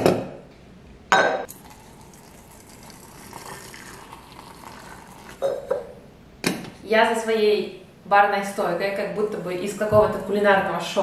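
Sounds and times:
water pouring into teapot: 0:01.5 - 0:05.7
glass lid clink: 0:05.4 - 0:05.9.

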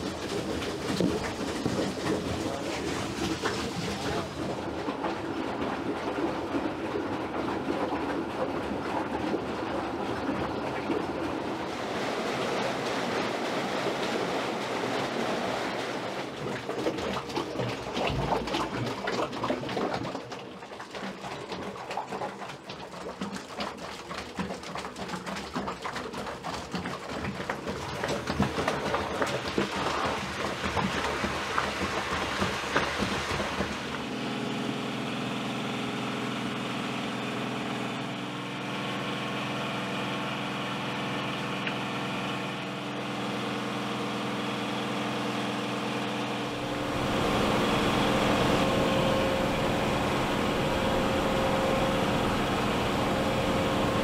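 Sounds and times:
paddle mixer churning concrete: 0:00.0 - 0:54.0
belt conveyor running: 0:46.2 - 0:54.0.

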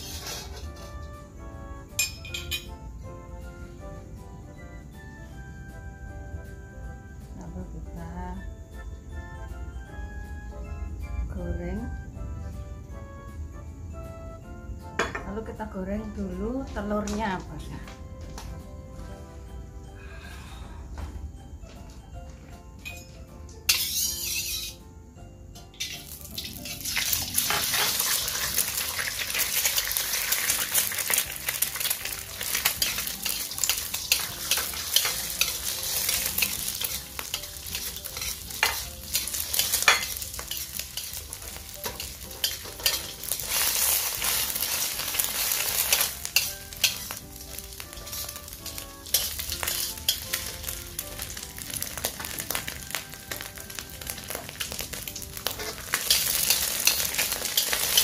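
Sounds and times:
egg sizzling in oil: 0:00.0 - 0:00.9, 0:23.7 - 0:24.8, 0:25.7 - 0:58.0
metal spatula scraping wok: 0:00.0 - 0:01.1, 0:23.7 - 0:24.8, 0:25.8 - 0:58.0.

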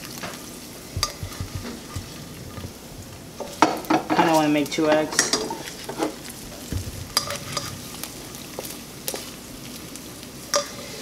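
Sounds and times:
egg sizzling in oil: 0:00.0 - 0:11.0
spatula scraping and tapping pan: 0:00.9 - 0:02.8, 0:03.4 - 0:09.4, 0:10.5 - 0:11.0.

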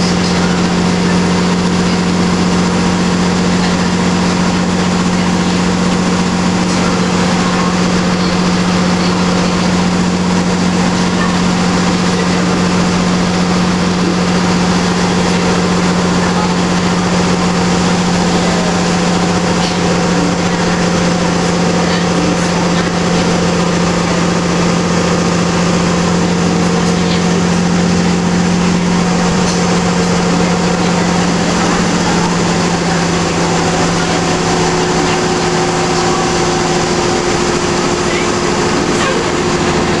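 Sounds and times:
bus engine droning: 0:00.0 - 0:40.0
higher steady tone: 0:00.0 - 0:40.0
road and cabin noise: 0:00.0 - 0:40.0.

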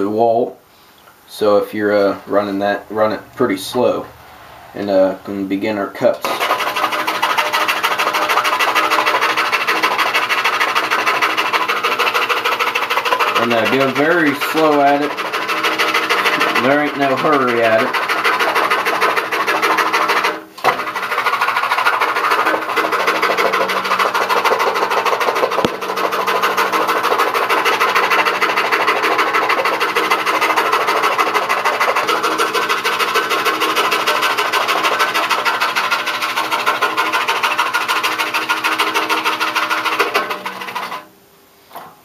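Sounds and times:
scroll saw cutting wood: 0:06.0 - 0:41.1.

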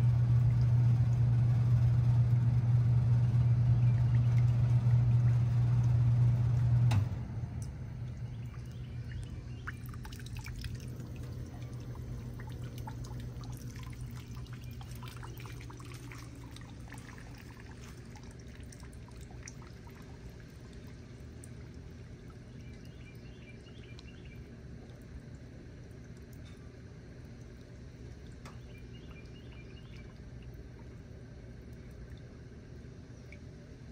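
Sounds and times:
heat pump low hum: 0:00.0 - 0:33.9
liquid trickling and dripping: 0:00.0 - 0:33.9.

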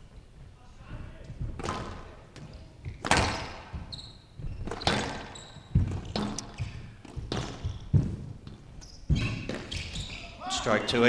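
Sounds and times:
squash ball hits: 0:01.4 - 0:03.9, 0:04.6 - 0:10.0
shoe squeaks on court floor: 0:03.2 - 0:08.0, 0:08.6 - 0:10.4.

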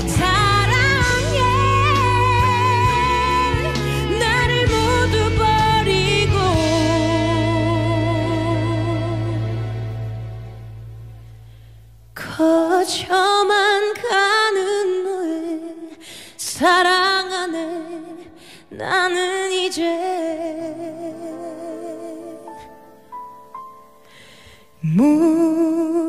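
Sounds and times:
woman singing a slow ballad: 0:00.0 - 0:10.2, 0:12.2 - 0:23.1, 0:24.8 - 0:26.0.

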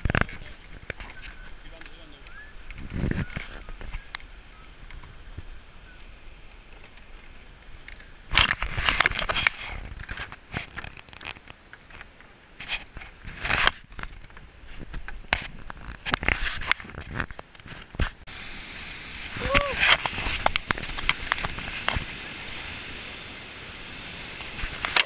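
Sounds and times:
camera handling scraping: 0:08.3 - 0:18.2
river water rushing: 0:18.3 - 0:25.0.

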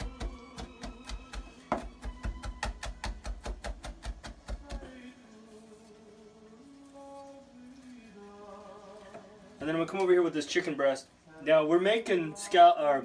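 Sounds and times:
knife chopping on cutting board: 0:00.0 - 0:04.8
background music: 0:00.0 - 0:09.8.

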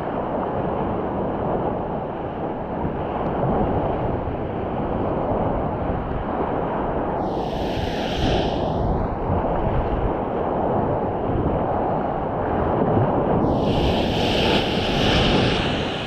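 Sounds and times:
wind buffeting microphone: 0:00.0 - 0:16.0
surf: 0:07.2 - 0:10.2, 0:12.5 - 0:16.0.

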